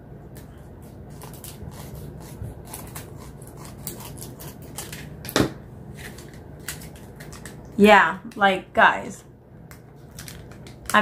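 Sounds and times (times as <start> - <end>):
plastic film crackling: 10.0 - 11.0.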